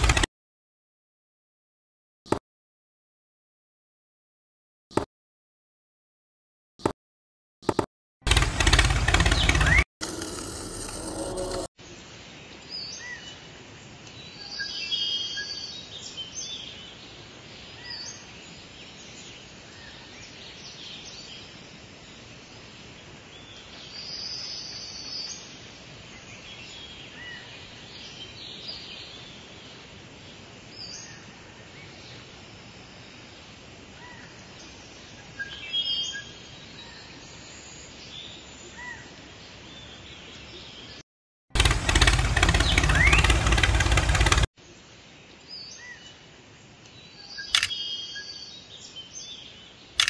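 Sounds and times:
loud noisy burst: 0:00.0 - 0:00.3, 0:08.3 - 0:11.7, 0:41.6 - 0:44.5
steady sound: 0:08.3 - 0:11.7
birds chirping: 0:08.6 - 0:09.9, 0:41.6 - 0:44.5
outdoor background hiss: 0:11.8 - 0:41.0, 0:41.6 - 0:50.0.

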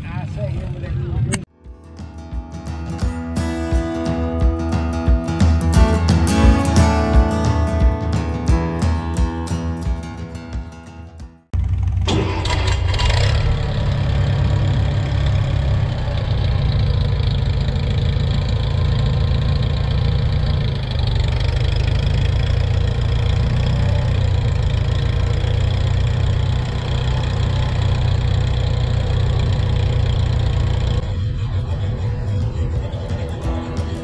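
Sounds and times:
tractor engine running: 0:11.5 - 0:34.0.

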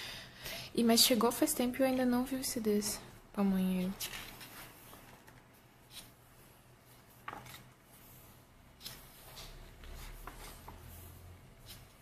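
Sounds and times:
pages turning: 0:07.1 - 0:07.7.

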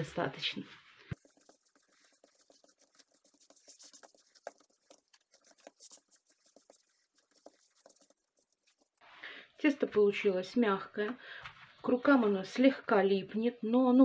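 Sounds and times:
hands kneading sticky dough: 0:01.0 - 0:09.0.

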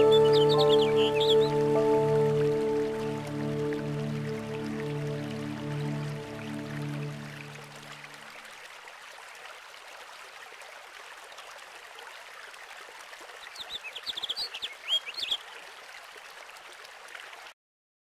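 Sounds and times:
bird chirps: 0:00.0 - 0:01.7, 0:13.5 - 0:15.4.

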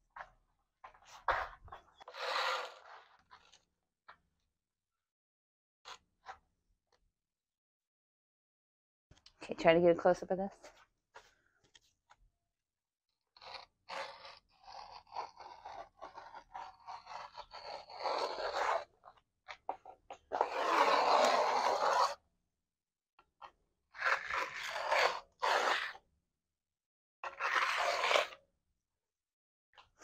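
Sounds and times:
scoring tool scraping plaster: 0:00.1 - 0:04.2, 0:05.8 - 0:07.0, 0:13.1 - 0:22.3, 0:23.2 - 0:28.6, 0:29.7 - 0:30.0.

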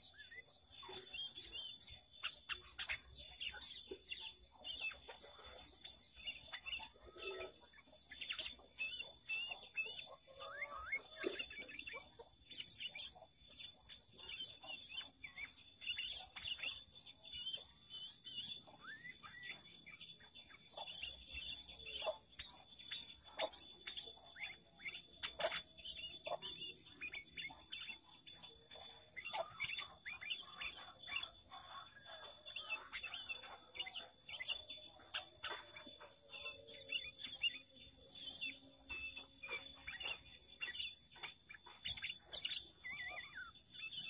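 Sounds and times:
bird singing chirps and whistles: 0:00.0 - 0:44.0.

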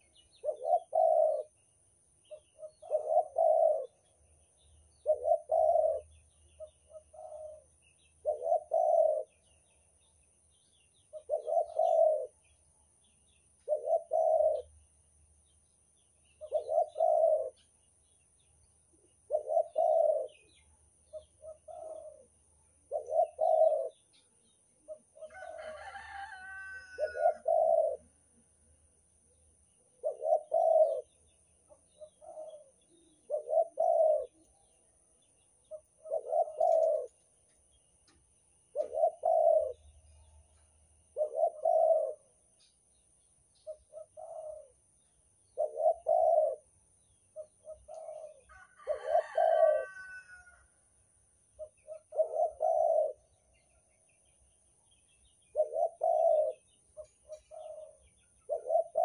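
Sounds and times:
dove cooing: 0:00.0 - 0:01.6, 0:02.2 - 0:09.6, 0:11.0 - 0:12.5, 0:13.6 - 0:14.8, 0:16.4 - 0:17.7, 0:19.1 - 0:28.6, 0:29.8 - 0:34.9, 0:35.6 - 0:37.3, 0:38.7 - 0:42.4, 0:43.6 - 0:44.8, 0:45.5 - 0:50.6, 0:51.6 - 0:53.8, 0:55.5 - 0:59.0.

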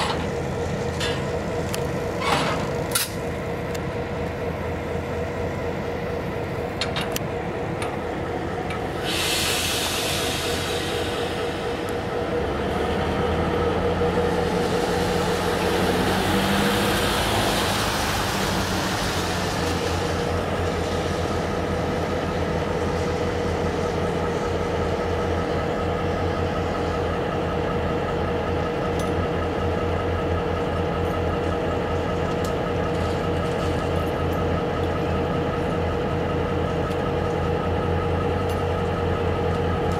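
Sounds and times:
diesel locomotive engine rumbling: 0:00.0 - 0:39.9
broad swell of noise: 0:08.8 - 0:23.9
hissing burst: 0:09.0 - 0:12.0.

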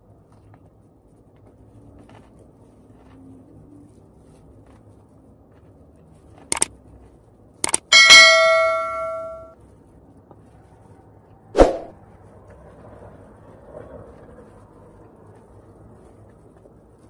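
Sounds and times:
notification bell ding: 0:07.7 - 0:09.5.

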